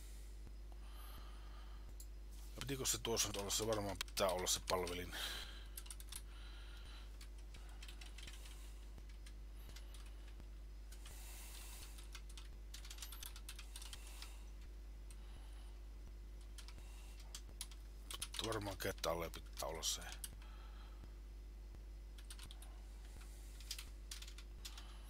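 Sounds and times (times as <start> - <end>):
steady low hum: 0.0 - 25.0
typing on a keyboard: 3.1 - 5.0, 5.8 - 6.3, 7.2 - 10.4, 11.8 - 14.3, 16.4 - 20.4, 22.2 - 22.7, 23.6 - 24.9.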